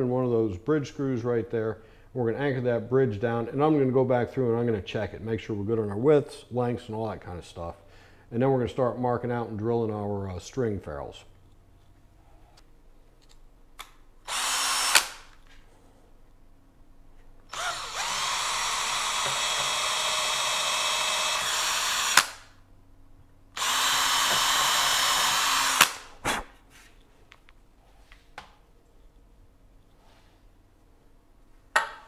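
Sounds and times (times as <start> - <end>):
cordless drill drilling wood: 14.3 - 15.3, 17.5 - 22.5, 23.6 - 26.1
drill stopping click: 14.3 - 15.3, 17.5 - 22.4, 23.6 - 26.0.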